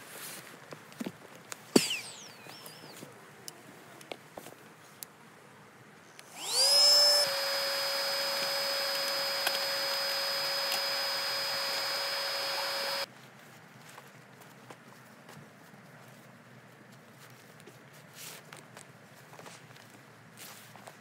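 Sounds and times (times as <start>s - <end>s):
electric air pump whining: 1.8s - 3.1s, 6.2s - 13.1s.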